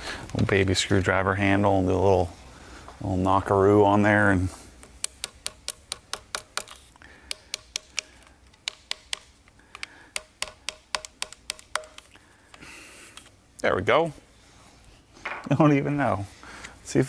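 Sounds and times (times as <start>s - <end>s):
screwdriver handle tapping: 4.9s - 12.6s.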